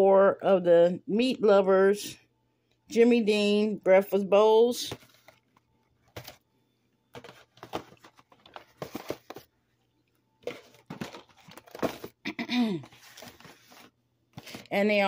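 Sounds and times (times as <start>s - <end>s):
packaging rustling and crinkling: 4.9s - 6.4s, 7.1s - 9.5s, 10.4s - 12.2s, 12.8s - 14.7s.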